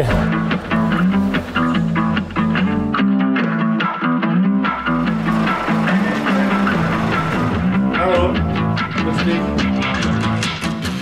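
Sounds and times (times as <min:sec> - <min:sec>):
guitar picking notes: 0:00.5 - 0:11.0
bass line: 0:04.4 - 0:11.0.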